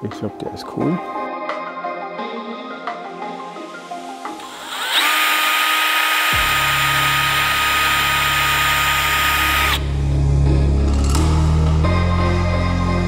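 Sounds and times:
electric drill whining: 4.4s - 10.0s.

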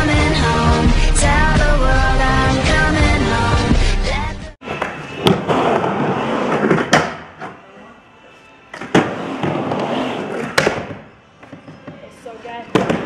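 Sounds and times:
music: 0.0s - 13.0s
skateboard wheels rolling on wood: 4.6s - 7.3s.

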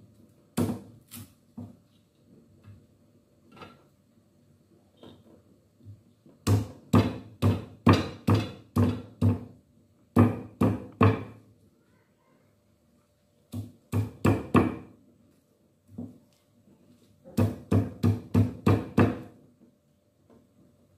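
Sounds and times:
cleaver chopping on wooden block: 6.5s - 9.5s.

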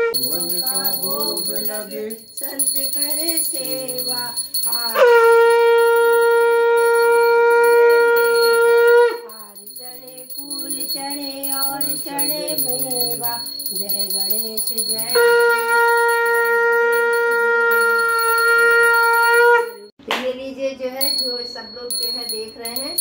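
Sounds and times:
conch shell blown: 0.0s - 0.3s, 4.4s - 9.4s, 15.0s - 19.9s
voices singing: 0.1s - 16.4s
small hand bell ringing: 0.1s - 19.9s, 21.0s - 23.0s.

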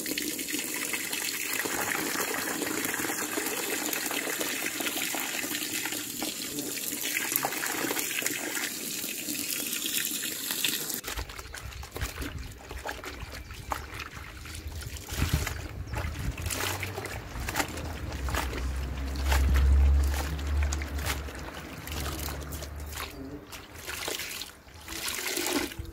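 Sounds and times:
water pouring into plastic tub: 0.0s - 25.9s
hands sloshing cloth in water: 11.0s - 25.9s.

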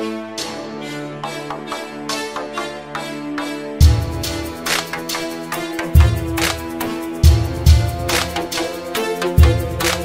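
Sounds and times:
background music with drums: 0.4s - 10.0s
heavy kick drum: 3.8s - 4.5s, 6.0s - 6.5s, 7.2s - 8.2s.

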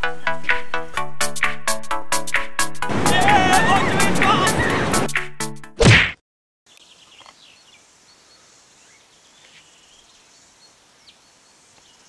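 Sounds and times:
bird chirps: 6.7s - 12.0s.

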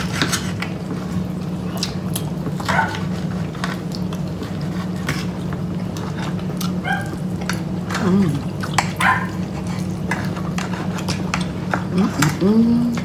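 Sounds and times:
chewing: 0.0s - 13.0s
dog whining: 2.7s - 3.1s, 6.8s - 7.2s, 8.0s - 9.4s.

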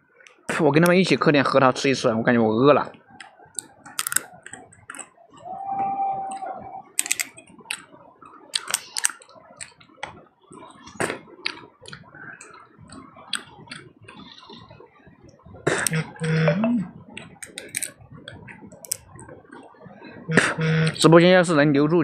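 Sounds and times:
walnut shells cracking: 3.6s - 4.2s, 7.0s - 7.8s, 8.5s - 9.8s, 17.4s - 17.9s
brief steady tone: 15.9s - 17.0s.

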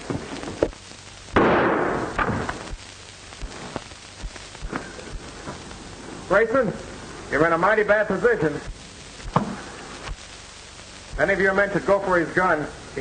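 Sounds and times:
gunshot: 1.3s - 2.8s, 9.2s - 9.6s.

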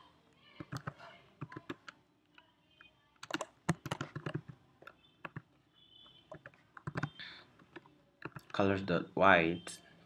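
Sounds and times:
typing on computer keyboard: 0.6s - 5.5s, 6.3s - 8.6s.

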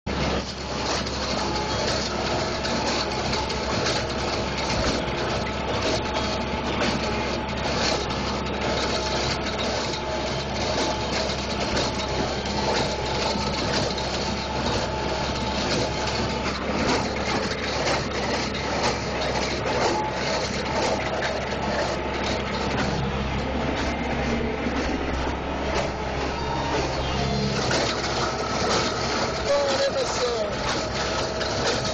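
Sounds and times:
tractor engine running: 0.1s - 31.9s.

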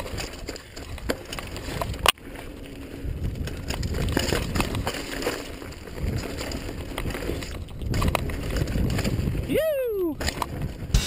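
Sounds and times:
bike rattling over dirt trail: 0.0s - 11.0s
wind on microphone: 2.8s - 5.1s, 5.8s - 11.0s.

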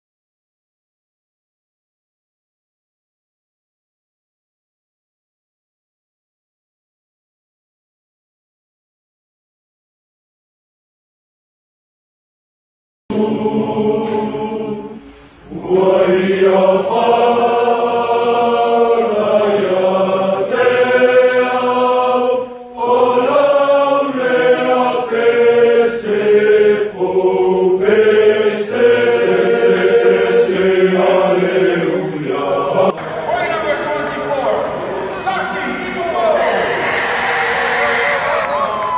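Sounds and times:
male choir singing: 13.1s - 38.5s.

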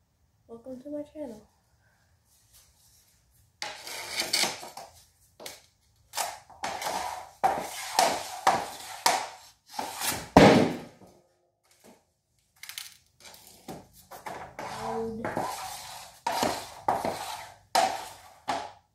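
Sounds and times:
hockey stick scraping on pad: 3.6s - 11.0s, 13.2s - 18.8s
pucks being struck: 6.2s - 11.0s, 13.7s - 18.9s.

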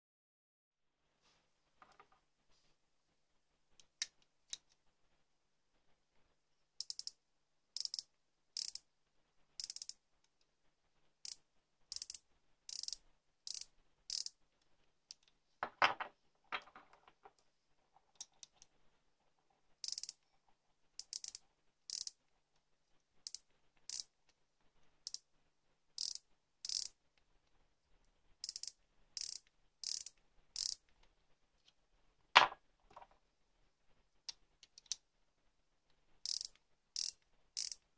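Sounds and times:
micrometer ratchet clicking: 6.8s - 7.1s, 7.8s - 8.8s, 9.6s - 10.0s, 11.3s - 14.3s, 19.8s - 20.2s, 21.0s - 22.2s, 23.3s - 24.1s, 26.0s - 27.0s, 28.4s - 30.8s, 36.2s - 37.8s.

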